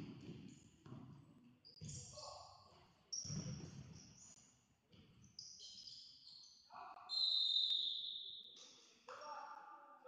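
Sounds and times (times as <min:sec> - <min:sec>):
sports shoes squeaking on floor: 0:01.6 - 0:02.4, 0:03.1 - 0:04.4, 0:05.0 - 0:08.3.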